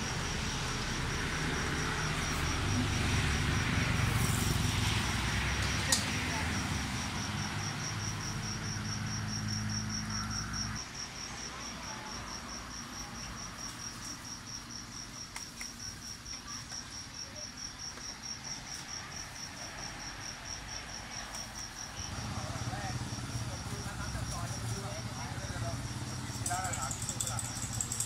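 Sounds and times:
low engine hum: 0:00.0 - 0:10.8
cricket chirping: 0:00.0 - 0:28.0.

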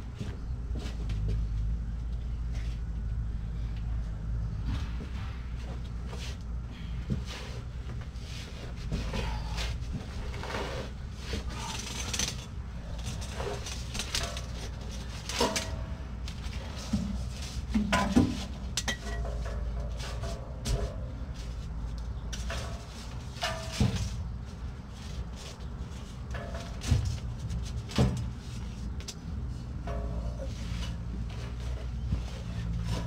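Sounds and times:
steady low rumble: 0:00.0 - 0:33.0
metal clinks and rattles: 0:11.5 - 0:16.9.

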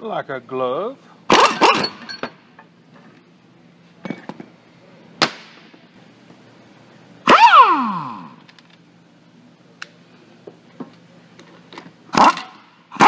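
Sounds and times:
metal parts clanking on workbench: 0:01.4 - 0:02.7.

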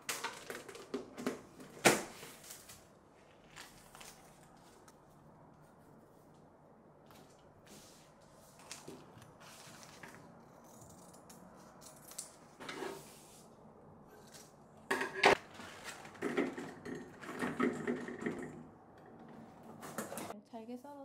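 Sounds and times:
clatter on metal colander: 0:16.0 - 0:18.7.

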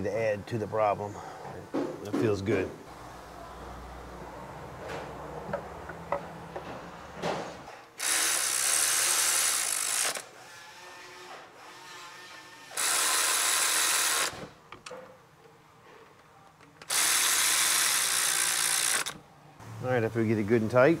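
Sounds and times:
power ratchet running: 0:08.0 - 0:10.3, 0:12.8 - 0:14.4, 0:16.9 - 0:19.2.

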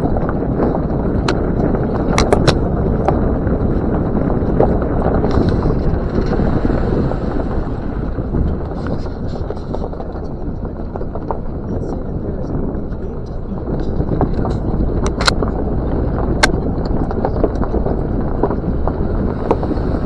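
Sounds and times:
vehicle engine and tyres rumbling: 0:00.0 - 0:20.0
wind buffeting microphone: 0:00.0 - 0:20.0
sharp clicks: 0:14.4 - 0:15.6.

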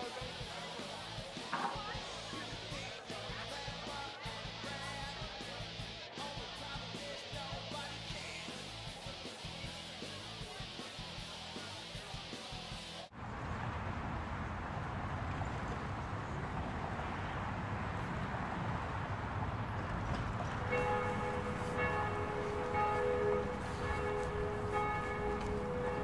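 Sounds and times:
street ambience rumble: 0:13.1 - 0:26.0
church bells ringing: 0:20.6 - 0:26.0
guitar music: 0:20.6 - 0:26.0.

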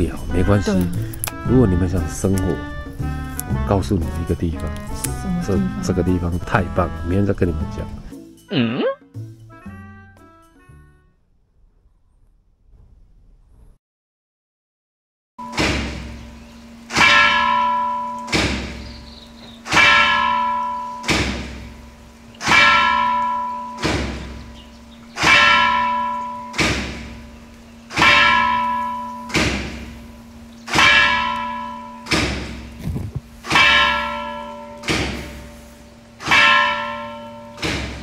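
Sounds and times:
steady low hum: 0:00.0 - 0:08.1, 0:15.4 - 0:38.0
bell struck rhythmically: 0:25.2 - 0:27.3, 0:28.0 - 0:30.1, 0:30.7 - 0:32.2, 0:33.5 - 0:35.6, 0:36.3 - 0:37.7.

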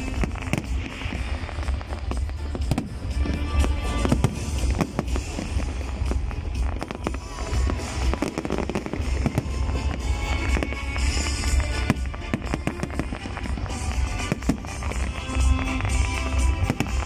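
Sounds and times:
fireworks bangs and crackles: 0:00.0 - 0:17.0
music playing: 0:00.0 - 0:17.0.

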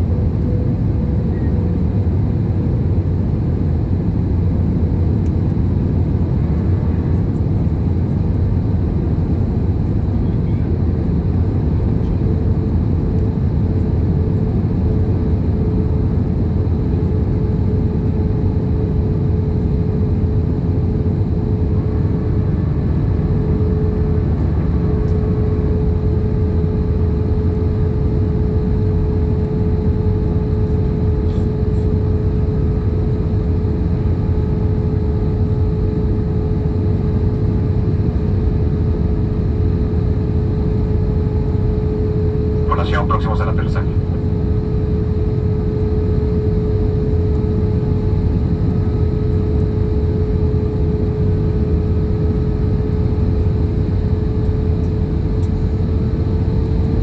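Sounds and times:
aircraft engines rumbling: 0:00.0 - 0:57.0
mid-pitched cabin hum: 0:37.9 - 0:57.0.

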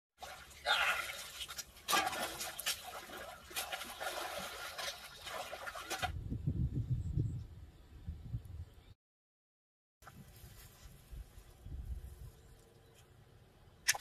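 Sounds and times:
fish splashing in pond water: 0:00.2 - 0:06.2.

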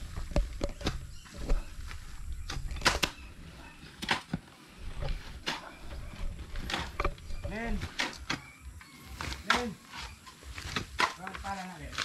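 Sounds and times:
digging tools chopping soil: 0:03.9 - 0:12.0.

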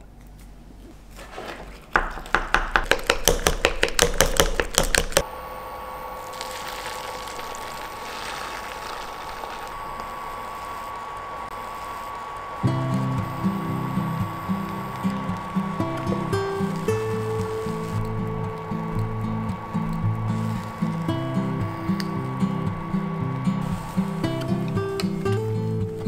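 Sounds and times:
electric hob humming: 0:05.2 - 0:26.0
oil sizzling in a pan: 0:19.8 - 0:25.9.

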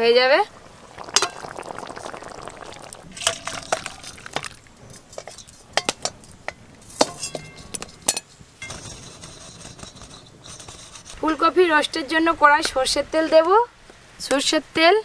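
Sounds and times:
metal utensils clinking and scraping: 0:03.1 - 0:06.2, 0:06.9 - 0:11.2.

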